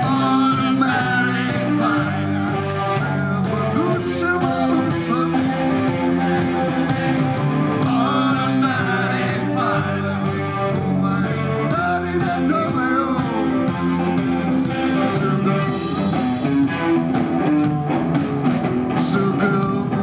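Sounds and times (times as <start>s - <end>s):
man singing: 0.0s - 16.1s, 18.9s - 20.0s
electric bass: 0.0s - 20.0s
electric guitar: 0.0s - 20.0s
second voice singing: 7.8s - 13.8s.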